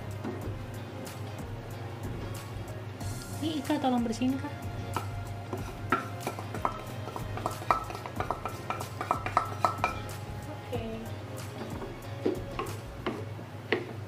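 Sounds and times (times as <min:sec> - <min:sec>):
spatula clinking on ceramic bowl: 0:05.0 - 0:10.1.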